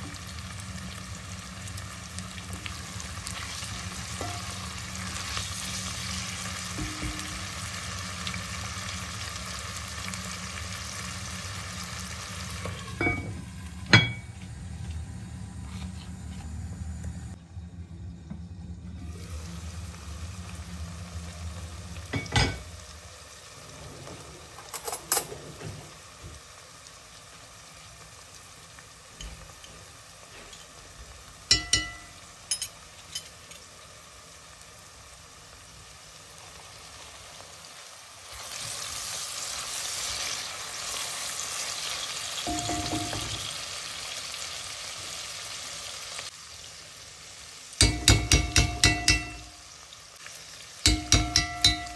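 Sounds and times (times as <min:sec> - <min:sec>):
vegetables sizzling in oil: 0:00.0 - 0:17.4, 0:18.9 - 0:51.9
metal knocking against pot: 0:06.8 - 0:07.4, 0:31.5 - 0:32.7, 0:42.5 - 0:43.4, 0:47.8 - 0:49.5, 0:50.9 - 0:51.9.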